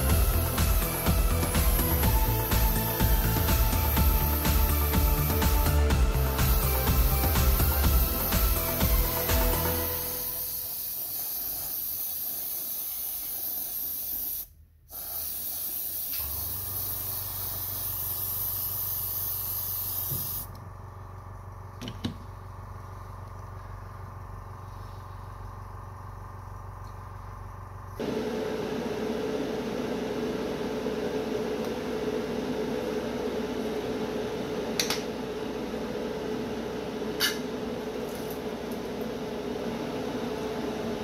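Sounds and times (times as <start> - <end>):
airbrush spraying hiss: 0.0 - 20.5
low steady hum: 20.5 - 41.0.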